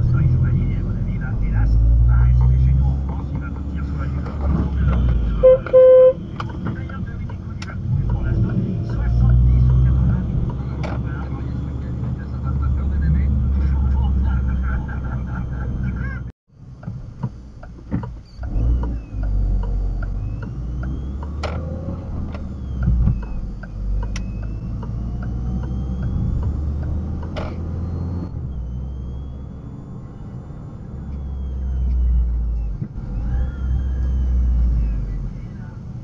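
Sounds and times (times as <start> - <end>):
car engine and road rumble: 0.0 - 36.0
sharp clicks: 22.3 - 27.6.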